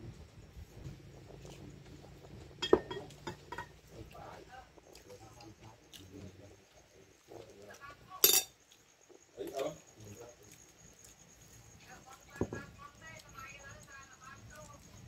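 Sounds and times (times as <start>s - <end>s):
faint background voices: 0.0s - 8.5s
metal spoon against ceramic bowl: 2.6s - 3.7s, 8.2s - 8.6s
plate clinking on table: 2.6s - 3.7s, 8.2s - 8.5s
dishes clinking: 2.6s - 3.8s, 8.2s - 8.6s.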